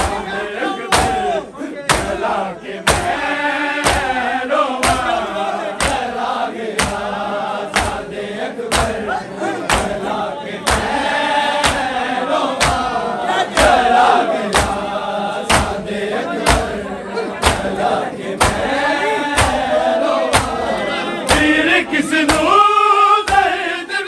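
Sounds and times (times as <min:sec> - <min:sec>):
men chanting in chorus: 0:00.0 - 0:24.0
hands slapping chests: 0:01.9 - 0:03.2, 0:03.8 - 0:04.2, 0:04.8 - 0:08.1, 0:08.7 - 0:14.9, 0:15.5 - 0:16.8, 0:17.4 - 0:21.7, 0:22.3 - 0:22.7, 0:23.3 - 0:23.5.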